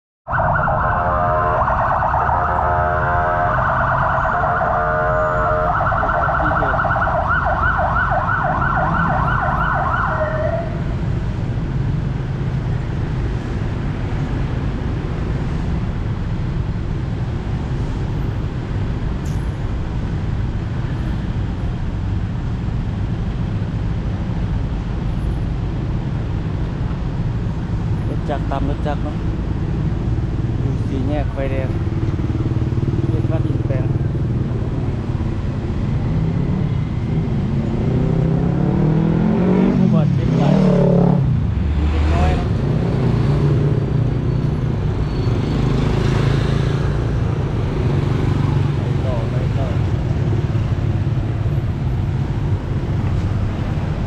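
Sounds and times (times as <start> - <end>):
ambulance siren wailing: 0.3 - 10.9
street traffic noise: 0.3 - 54.0.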